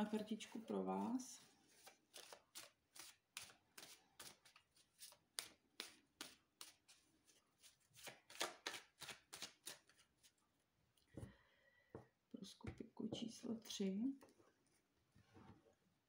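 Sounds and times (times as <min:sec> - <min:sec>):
cards being shuffled: 0:01.7 - 0:10.3.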